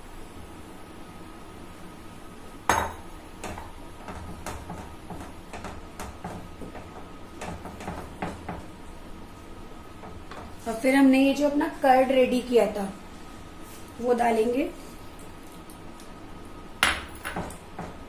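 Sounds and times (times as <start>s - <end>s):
spoon knocking and scraping pan: 2.7s - 8.8s, 10.0s - 10.6s.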